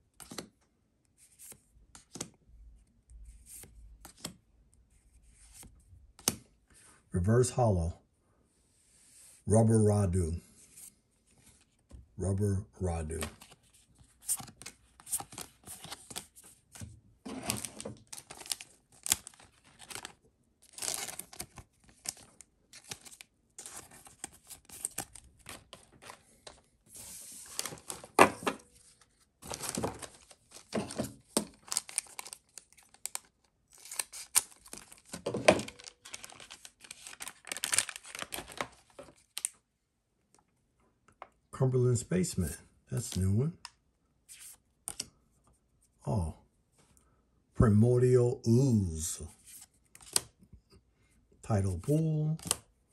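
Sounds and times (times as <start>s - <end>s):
wrappers tearing and crinkling: 17.3s - 26.0s, 29.5s - 39.5s.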